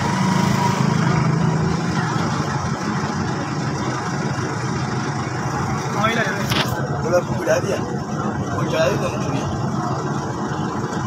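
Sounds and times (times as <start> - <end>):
low engine drone: 0.0 - 11.0.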